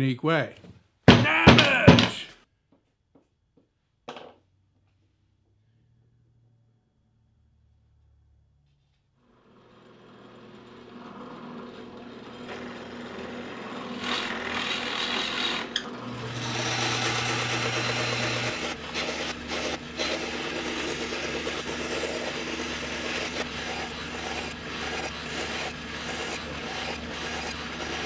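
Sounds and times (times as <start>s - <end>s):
scroll saw motor hum: 9.4s - 28.0s
saw blade rasping through wood: 9.5s - 28.0s.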